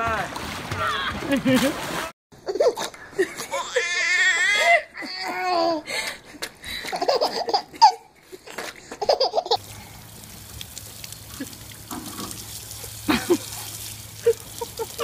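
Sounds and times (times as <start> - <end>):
babies laughing: 6.9 - 9.6, 14.2 - 15.0
hose nozzle spraying water: 9.5 - 15.0.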